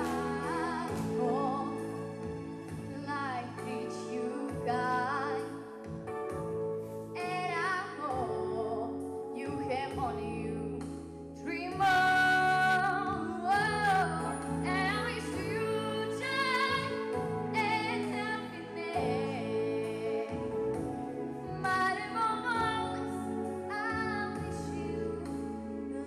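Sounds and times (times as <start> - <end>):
instrumental accompaniment: 0.0 - 26.0
girl singing into a microphone: 11.4 - 16.9, 21.5 - 25.3.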